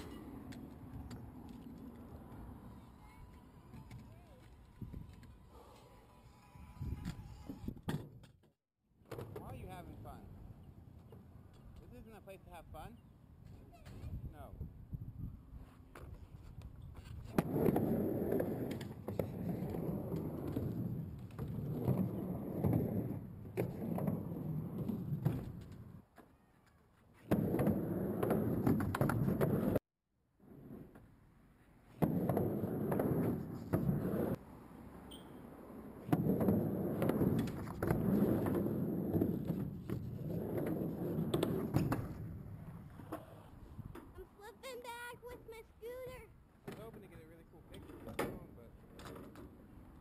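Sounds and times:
skateboard rolling rumble: 0:16.2 - 0:26.1, 0:32.0 - 0:34.4, 0:35.6 - 0:44.0.

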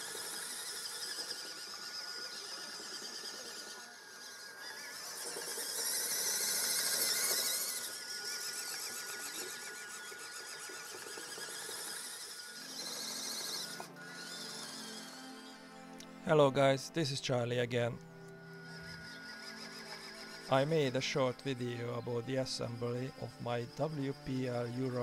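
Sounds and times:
toy truck electric motor whining: 0:00.0 - 0:25.0
background music: 0:12.6 - 0:25.0.

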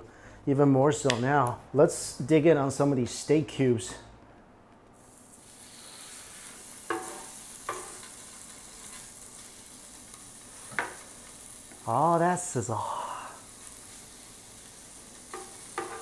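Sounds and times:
steak sizzling on grill pan: 0:05.0 - 0:16.0.

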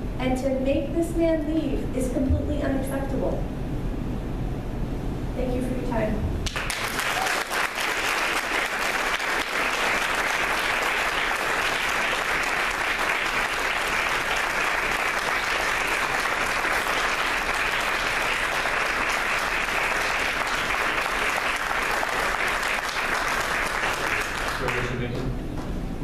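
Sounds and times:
audience applauding: 0:06.4 - 0:25.3.

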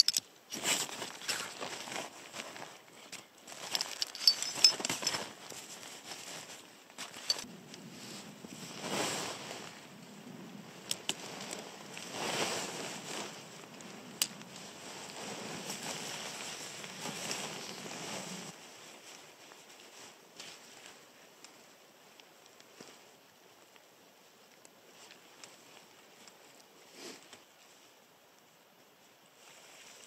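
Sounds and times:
tent poles clicking: 0:00.0 - 0:06.4
tent fabric rustling: 0:00.5 - 0:09.9, 0:10.6 - 0:28.0, 0:29.0 - 0:30.0.

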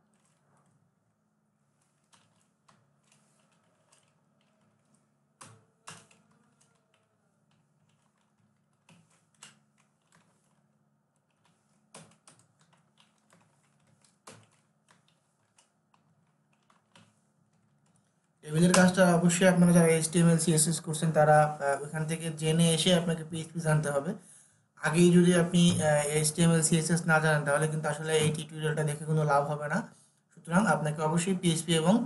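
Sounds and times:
keyboard typing: 0:00.1 - 0:00.7, 0:01.8 - 0:19.4.

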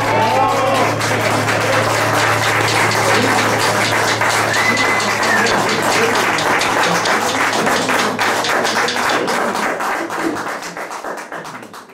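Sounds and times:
audience applauding: 0:00.0 - 0:11.9
high whistle: 0:04.2 - 0:05.8.

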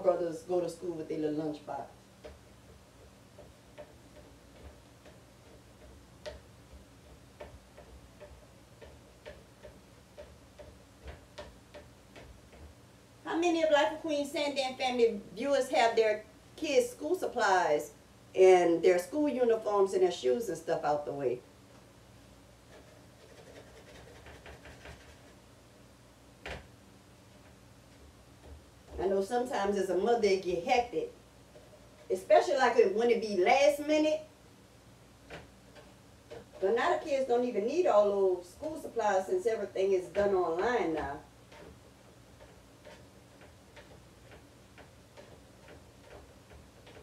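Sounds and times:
steady low hum: 0:00.0 - 0:47.0
cooking clicks and taps: 0:02.2 - 0:12.8, 0:35.2 - 0:36.8, 0:40.1 - 0:47.0.

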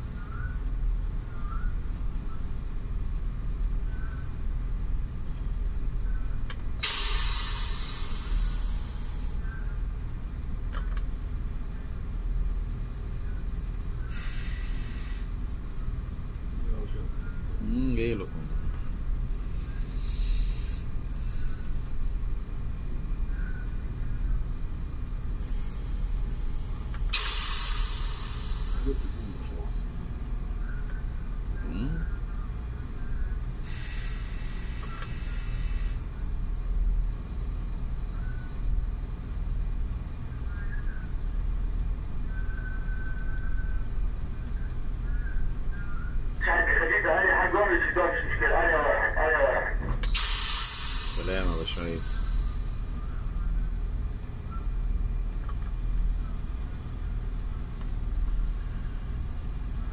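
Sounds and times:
low machinery rumble: 0:00.0 - 0:59.9
brief hiss: 0:06.8 - 0:09.4, 0:14.1 - 0:15.2, 0:27.1 - 0:29.4, 0:33.7 - 0:36.0, 0:50.0 - 0:53.1
heavy machinery rumbling: 0:42.3 - 0:50.0.

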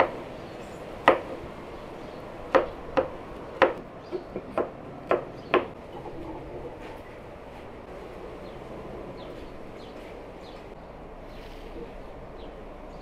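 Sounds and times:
sharp knocks on hard surface: 0:02.5 - 0:05.8.

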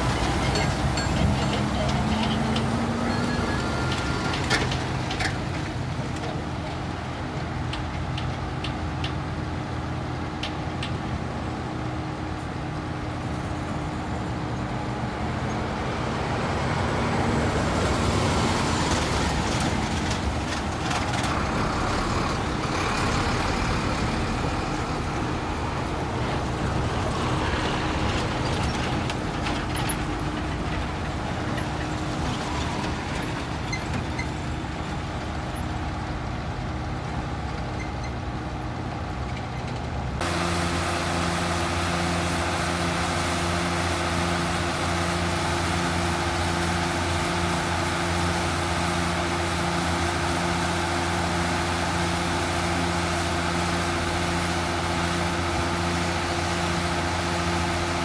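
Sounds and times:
diesel engine humming: 0:00.0 - 0:58.0
dump trucks driving past: 0:00.0 - 0:58.0.

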